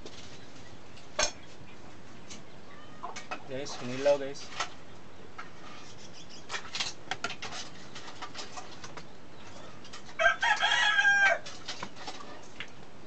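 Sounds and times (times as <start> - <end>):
rooster crowing: 10.1 - 11.6.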